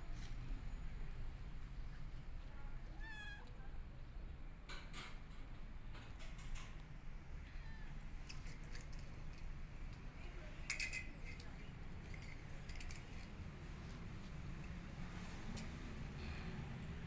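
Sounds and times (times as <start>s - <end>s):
cat mewing: 2.9s - 3.5s.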